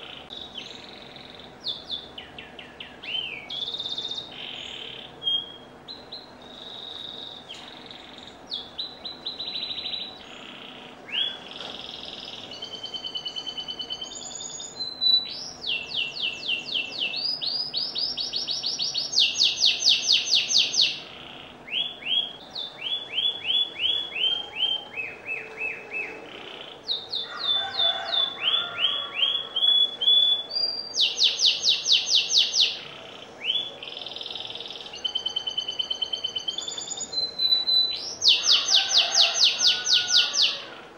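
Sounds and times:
canary singing: 0:00.0 - 0:40.9.

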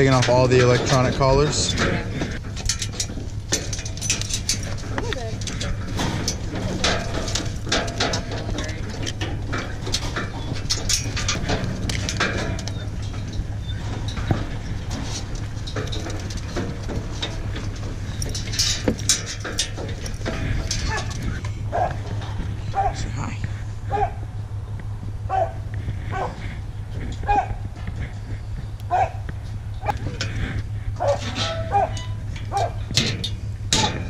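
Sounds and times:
metal bars of dog box rattling: 0:00.0 - 0:23.0, 0:31.0 - 0:34.0
collar buckles clicking: 0:00.0 - 0:34.0
steady low hum: 0:00.0 - 0:34.0.

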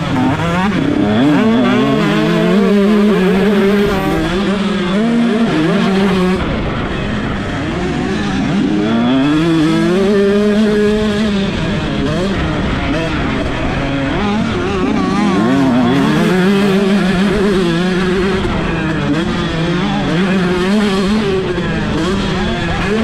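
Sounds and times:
two-stroke motorbike engine revving: 0:00.0 - 0:23.0.

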